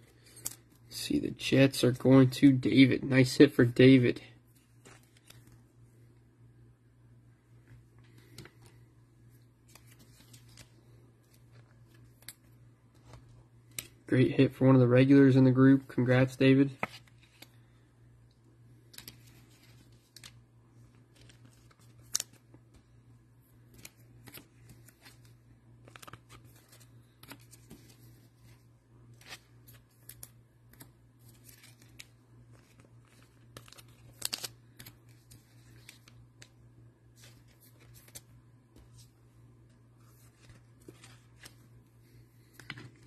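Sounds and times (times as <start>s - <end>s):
trading cards clicking and rustling: 0.0s - 0.8s, 9.6s - 14.0s, 18.8s - 20.4s, 21.0s - 23.0s, 23.6s - 36.6s.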